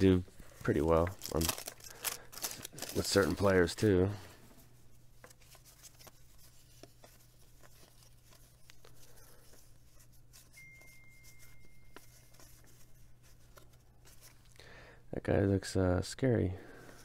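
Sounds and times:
cardboard cards rustling by hand: 0.0 - 14.6, 16.6 - 17.0
low steady hum: 0.0 - 17.0
thin high steady tone: 10.3 - 13.1.

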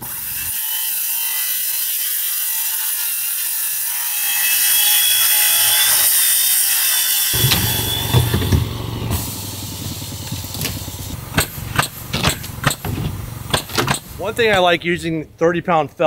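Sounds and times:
circular saw cutting plywood: 0.0 - 14.7
knocks: 7.4 - 8.8, 11.3 - 14.1.

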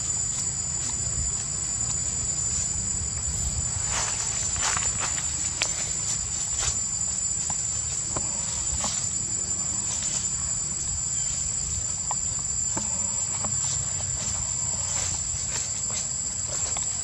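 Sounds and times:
low rumble: 0.0 - 7.3
insects calling high-pitched: 0.0 - 17.0.

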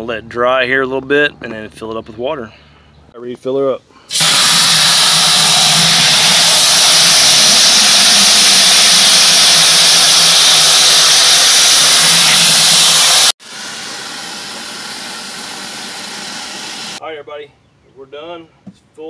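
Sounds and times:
hose spraying into plastic bucket: 4.1 - 17.0.

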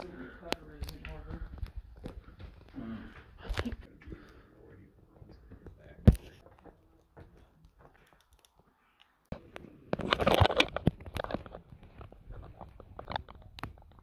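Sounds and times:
camera handling rustle: 9.9 - 14.0.

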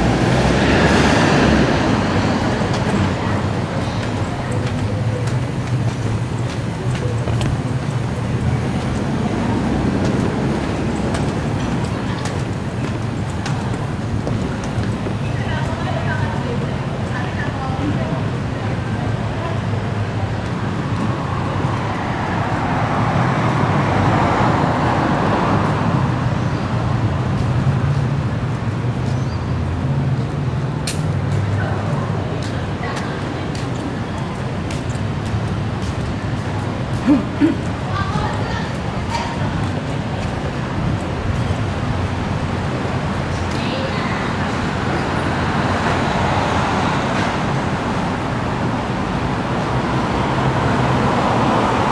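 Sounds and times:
vehicle passing: 0.0 - 16.6
road traffic hum: 0.0 - 51.9.

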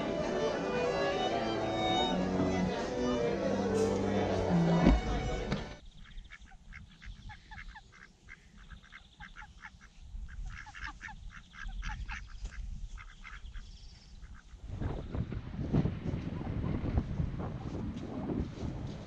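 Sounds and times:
ducks quacking: 4.0 - 14.6.

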